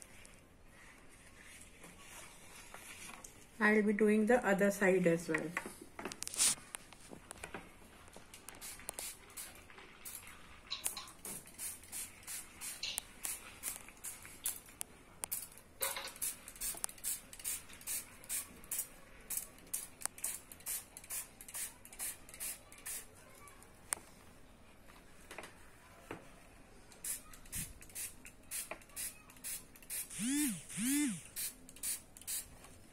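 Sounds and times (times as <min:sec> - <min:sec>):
spray bottle spritzing: 0:08.5 - 0:14.6, 0:15.3 - 0:23.1, 0:27.0 - 0:32.5.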